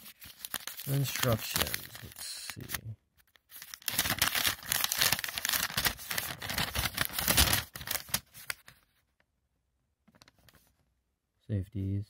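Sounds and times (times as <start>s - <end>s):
paper rustling and crinkling: 0.0s - 9.0s.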